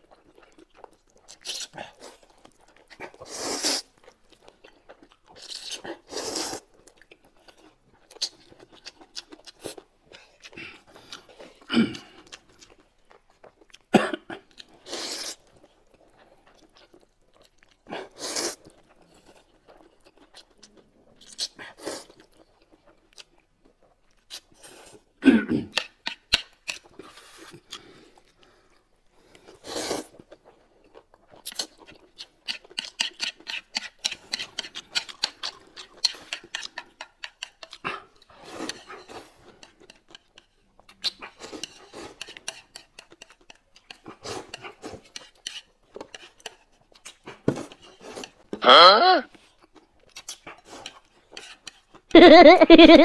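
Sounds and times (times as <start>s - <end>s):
chewing: 0.0s - 48.6s, 49.3s - 52.2s
noodles slurped: 1.0s - 4.0s, 4.9s - 8.4s, 17.8s - 19.4s, 29.2s - 48.5s
chopsticks clicking on bowls: 32.5s - 37.8s, 41.1s - 46.6s.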